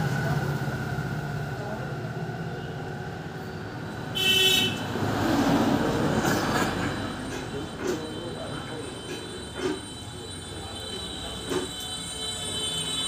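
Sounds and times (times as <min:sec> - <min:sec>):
traffic rumbling past: 0:00.0 - 0:08.9
high-pitched vehicle horn toot: 0:04.1 - 0:04.9, 0:09.6 - 0:13.0.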